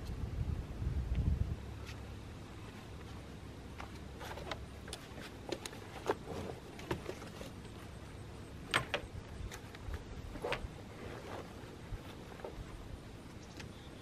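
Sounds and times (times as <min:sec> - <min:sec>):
camping gear knocking and clattering: 0:03.0 - 0:12.8.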